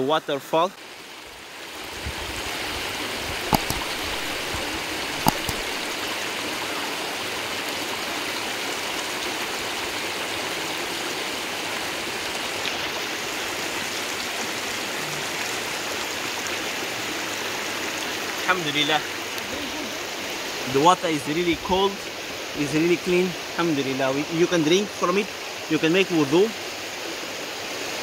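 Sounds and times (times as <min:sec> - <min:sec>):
stream rushing over rock: 0:00.8 - 0:28.0
short sharp clicks: 0:03.5 - 0:06.0.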